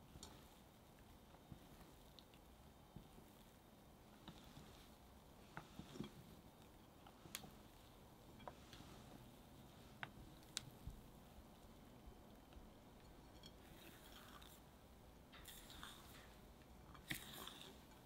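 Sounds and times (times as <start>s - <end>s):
spatula squishing through batter: 12.7s - 18.0s.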